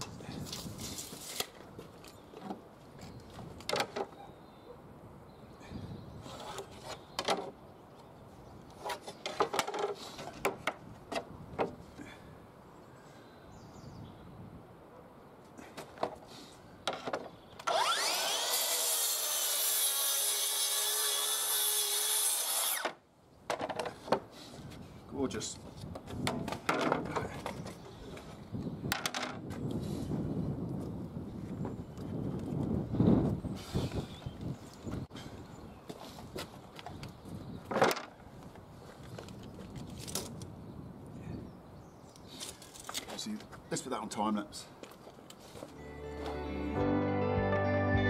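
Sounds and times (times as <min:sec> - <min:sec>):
circular saw cutting wood: 0:17.6 - 0:23.0.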